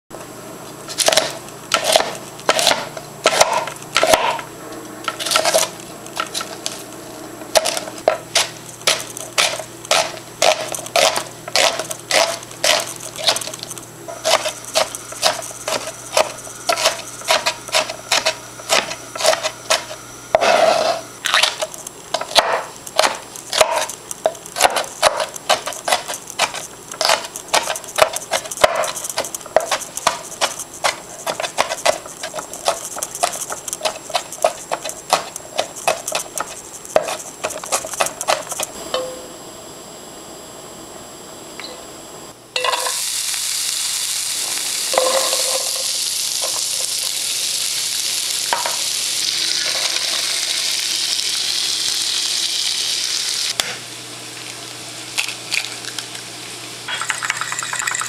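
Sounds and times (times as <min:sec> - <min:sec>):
knife chopping on plastic board: 0:01.0 - 0:04.4, 0:07.5 - 0:13.4, 0:14.2 - 0:19.9, 0:22.2 - 0:23.9, 0:24.6 - 0:38.6.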